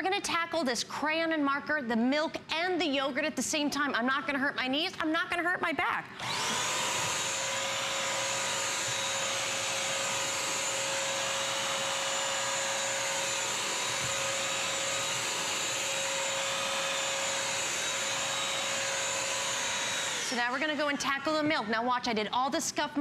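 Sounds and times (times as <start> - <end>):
vacuum mop motor whine: 6.2 - 21.5.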